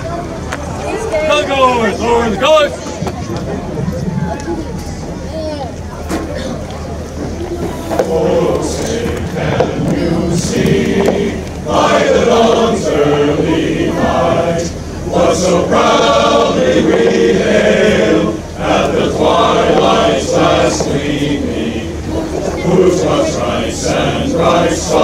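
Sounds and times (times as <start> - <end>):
men's chorus singing: 7.9 - 25.0.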